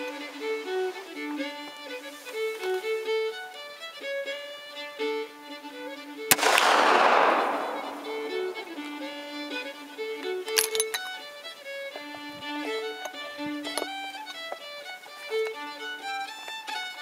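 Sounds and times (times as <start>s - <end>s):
fiddle music: 0.0s - 17.0s
rifle shot: 6.3s - 9.7s.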